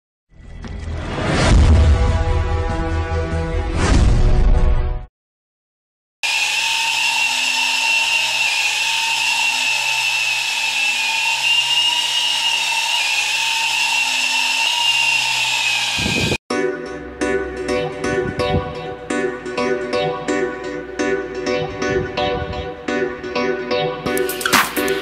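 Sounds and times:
toy helicopter motor whine: 6.2s - 16.4s.

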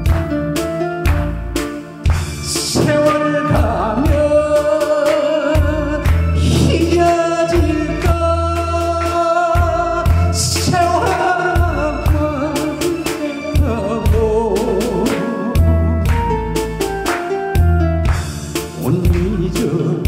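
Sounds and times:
instrumental accompaniment: 0.0s - 20.0s
man singing into a microphone: 2.4s - 16.1s, 18.7s - 20.0s.

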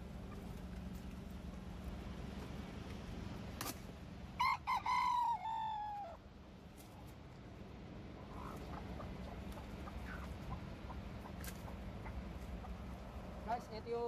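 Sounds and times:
rooster crowing: 4.4s - 6.2s.

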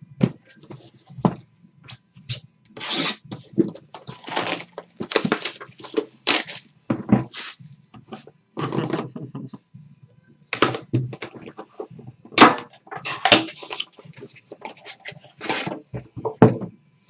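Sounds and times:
plastic shrink wrap crinkling: 3.9s - 6.7s.

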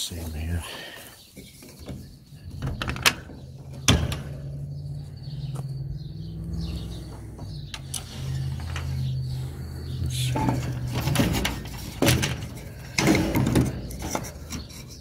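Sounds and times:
metal latch clicking: 2.5s - 4.5s.

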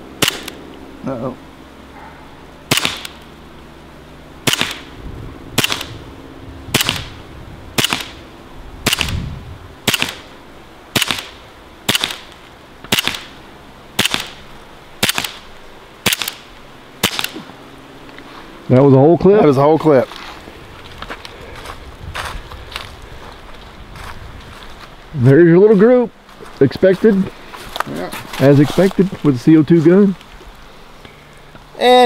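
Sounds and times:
bb pistol shots: 0.2s - 0.6s, 2.7s - 3.2s, 4.4s - 4.9s, 5.6s - 5.9s, 6.7s - 7.2s, 7.8s - 8.2s, 8.8s - 9.2s, 9.8s - 10.3s, 10.9s - 12.3s, 12.9s - 13.3s, 14.0s - 14.4s, 15.0s - 15.4s, 16.0s - 17.4s.

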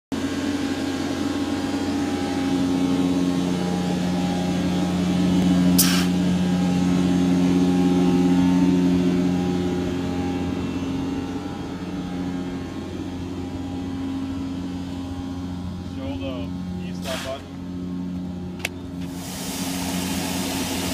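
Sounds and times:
vacuum loader droning hum: 0.1s - 20.9s
sharp hiss: 5.8s - 6.2s.

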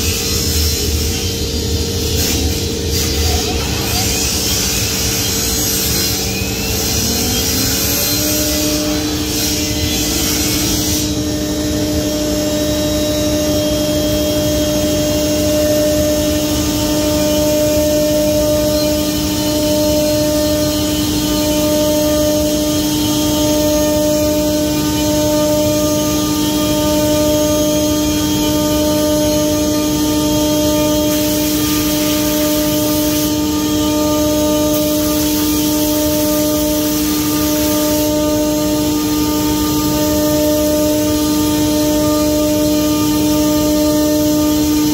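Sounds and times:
cnc router whine: 0.0s - 44.9s.

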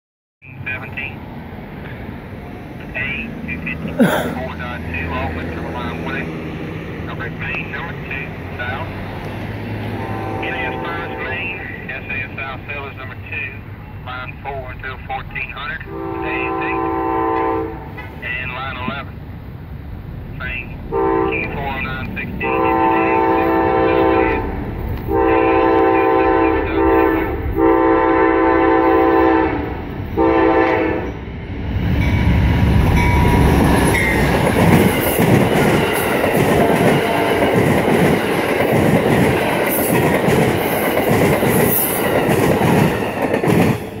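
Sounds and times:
train passing with rushing wind: 0.4s - 44.0s
clickety-clack over rail joints: 4.3s - 10.0s, 17.3s - 19.1s, 32.9s - 44.0s
train air horn blasts: 10.0s - 11.6s, 15.9s - 18.0s, 20.9s - 21.5s, 22.4s - 31.2s.

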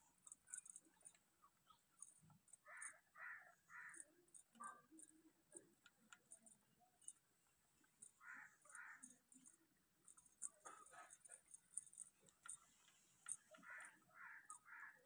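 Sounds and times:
faint crow cawing: 2.5s - 4.9s, 8.0s - 9.6s, 13.3s - 15.0s.

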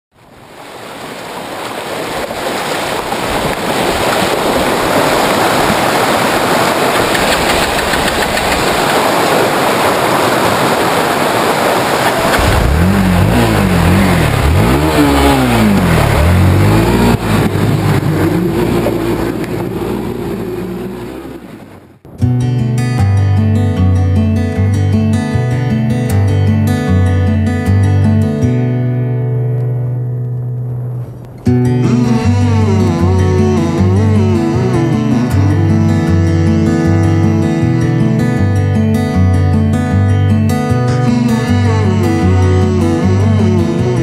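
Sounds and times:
rushing splashing water: 0.2s - 22.1s
motorcycle engine revving: 11.8s - 22.0s.

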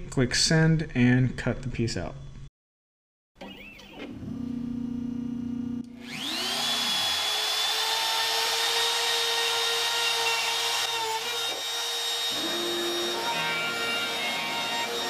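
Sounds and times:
router high whine: 3.4s - 15.0s.

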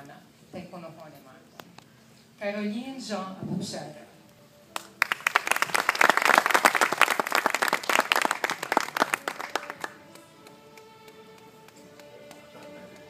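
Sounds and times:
audience applauding: 4.8s - 13.0s.

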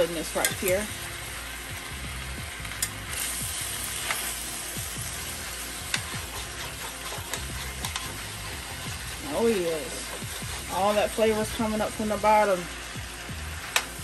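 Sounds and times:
food sizzling in skillet: 0.0s - 14.0s
spoon scraping pan: 5.4s - 11.6s.

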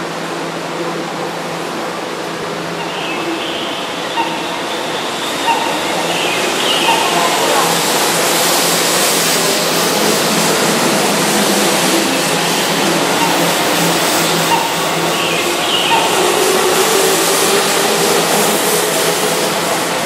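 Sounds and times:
electric train pulling out: 1.4s - 20.0s.

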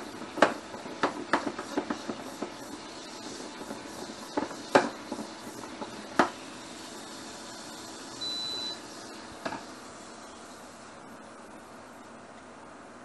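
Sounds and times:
electronic beep: 8.2s - 8.8s.

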